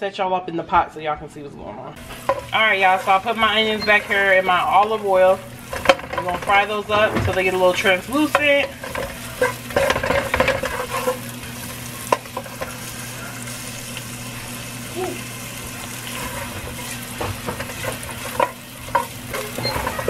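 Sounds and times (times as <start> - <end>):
onions sizzling in oil: 2.0 - 20.0
spatula scraping and tapping pot: 5.7 - 12.8, 16.1 - 20.0.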